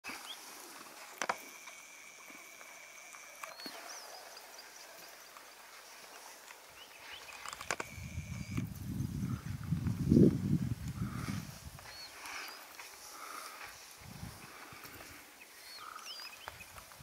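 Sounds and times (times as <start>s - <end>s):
sharp clicks: 1.1s - 4.0s, 7.2s - 8.8s
faint bird-like whistles: 11.9s - 12.7s.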